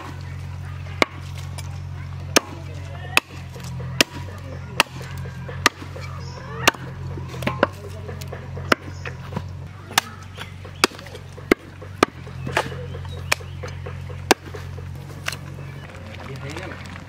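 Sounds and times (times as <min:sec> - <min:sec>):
steady low hum: 0:00.0 - 0:17.0
cleaver chopping on wooden block: 0:02.3 - 0:15.4.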